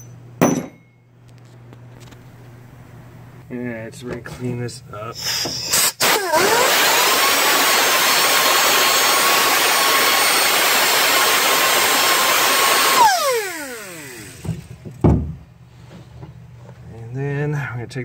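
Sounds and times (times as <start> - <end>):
single knock: 0.4 - 0.9
die grinder whine: 5.2 - 14.7.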